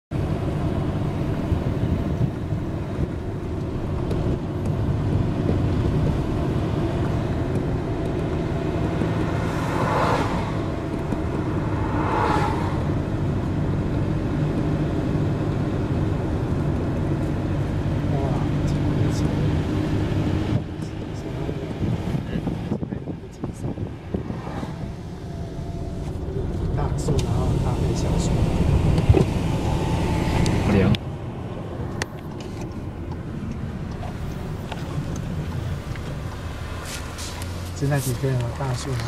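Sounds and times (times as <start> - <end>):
car road and engine rumble: 0.1 - 39.0
brief whooshes: 9.3 - 10.7, 11.6 - 13.0, 24.1 - 26.2.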